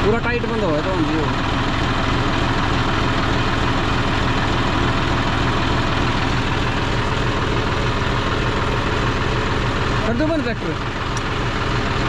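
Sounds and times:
tractor diesel engine idling: 0:00.0 - 0:12.0.

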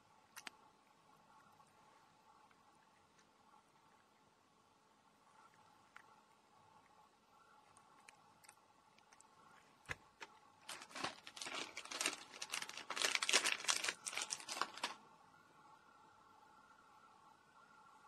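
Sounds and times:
cat crunching a treat: 0:07.7 - 0:15.0.

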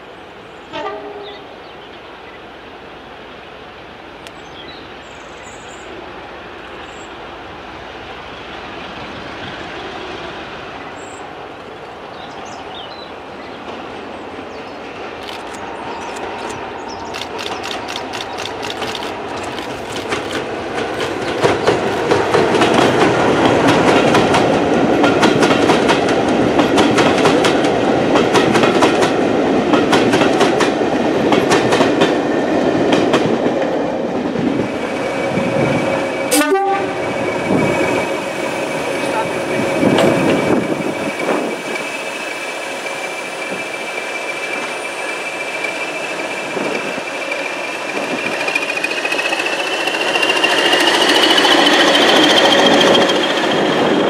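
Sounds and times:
diesel locomotive hauling train: 0:00.0 - 0:54.0
wheels clicking over rail joints: 0:15.0 - 0:34.4, 0:46.5 - 0:53.8.

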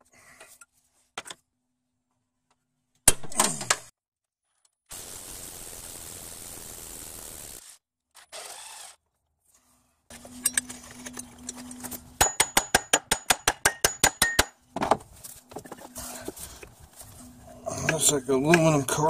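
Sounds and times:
steady hiss: 0:04.9 - 0:07.6
metal tools clinking: 0:10.1 - 0:12.4.

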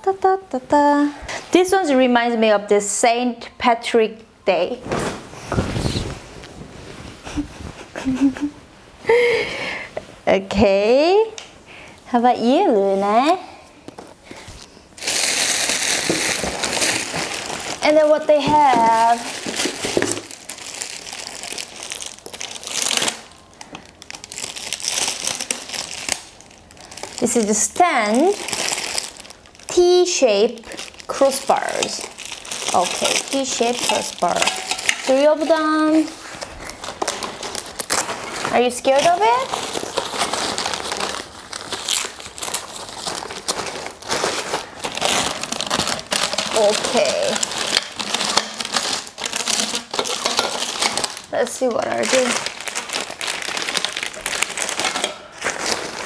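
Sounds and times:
fabric bag rustling: 0:04.8 - 0:07.9, 0:14.4 - 0:23.1, 0:30.7 - 0:56.0
plastic packaging crinkling: 0:13.9 - 0:56.0.

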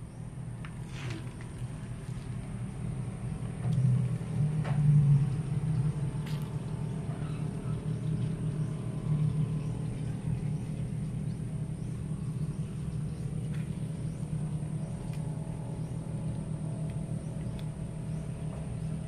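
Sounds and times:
steady low rumble: 0:00.0 - 0:19.0
faint clicks: 0:16.3 - 0:17.8.

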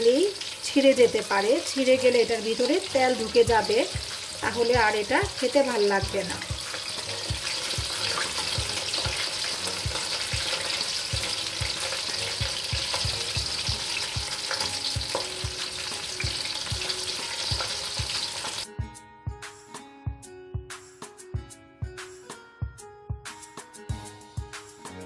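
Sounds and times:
food deep-frying in oil: 0:00.0 - 0:18.7
metal spatula in pan: 0:06.6 - 0:18.6.

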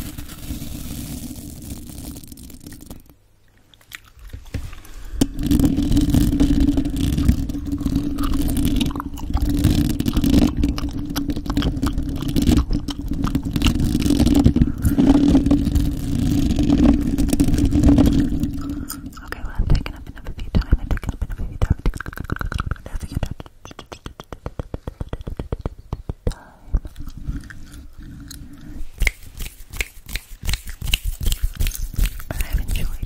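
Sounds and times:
nails scratching microphone grille: 0:04.4 - 0:23.4, 0:27.0 - 0:33.0.

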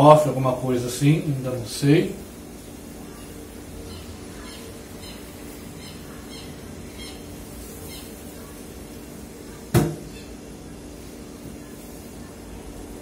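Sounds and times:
faint high chirps: 0:03.0 - 0:08.4
sharp knock: 0:09.7 - 0:10.0.

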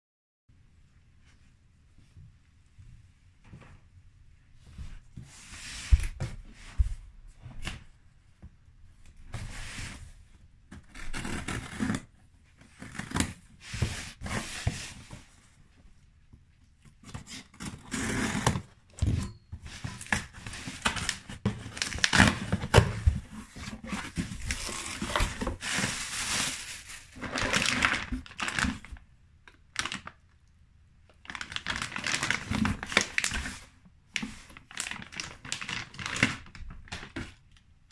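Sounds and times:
plastic bag crinkling: 0:24.4 - 0:29.0, 0:31.2 - 0:33.4, 0:34.6 - 0:37.1.

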